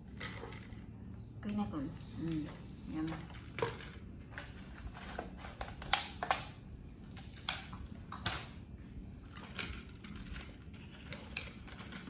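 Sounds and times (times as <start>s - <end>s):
low steady hum: 0.0s - 12.0s
plastic cups and ice clicking: 2.3s - 8.6s, 9.2s - 12.0s.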